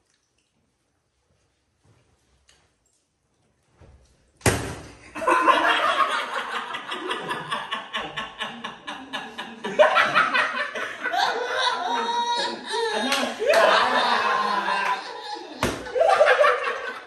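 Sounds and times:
sharp smack: 0:04.4 - 0:05.0, 0:15.6 - 0:15.9
young men laughing loudly: 0:05.1 - 0:17.0.

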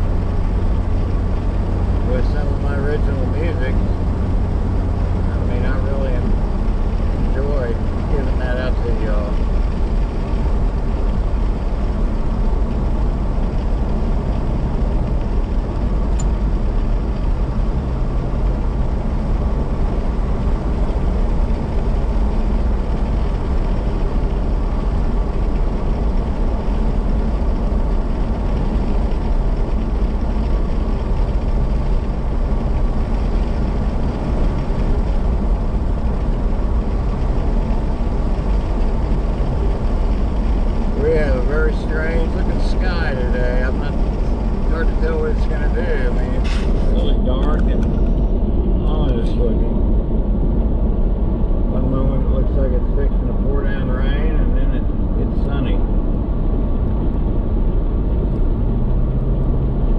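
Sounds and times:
car engine and tyre noise: 0:00.0 - 0:59.9.

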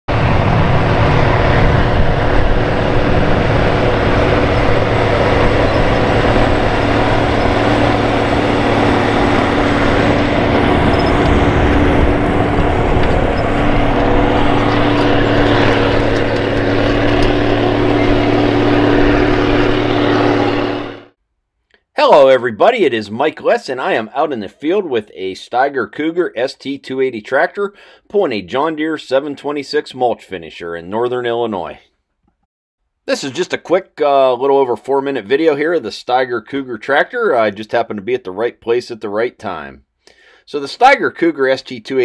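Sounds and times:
tractor diesel engine under load: 0:00.1 - 0:21.2.

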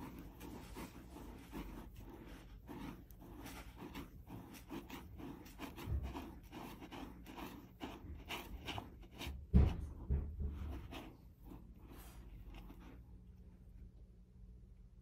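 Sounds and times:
cat scratching in litter: 0:00.0 - 0:13.1
dull thumps: 0:08.0 - 0:11.4.

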